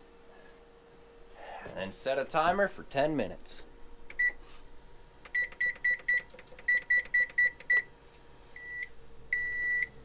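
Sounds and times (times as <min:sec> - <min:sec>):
oven keypad beeps: 0:04.1 - 0:04.4, 0:05.3 - 0:07.9, 0:08.6 - 0:10.0.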